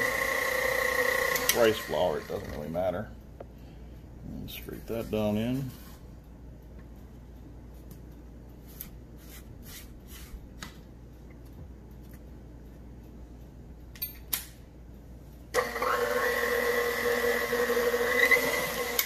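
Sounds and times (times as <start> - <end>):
stand mixer running: 0.0 - 2.6, 15.6 - 19.0.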